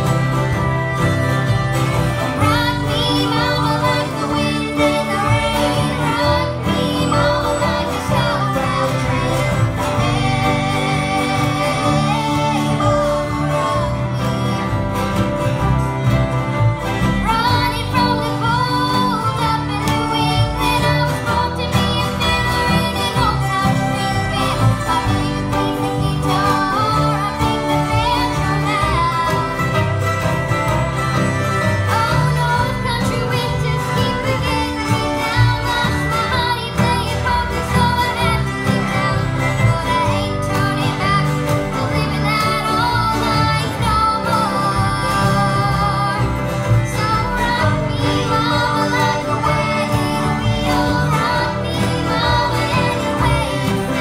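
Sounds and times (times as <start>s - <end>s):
acoustic guitars strumming: 0.0s - 54.0s
bowed fiddle: 0.0s - 54.0s
mandolins: 0.0s - 54.0s
upright bass: 0.0s - 54.0s.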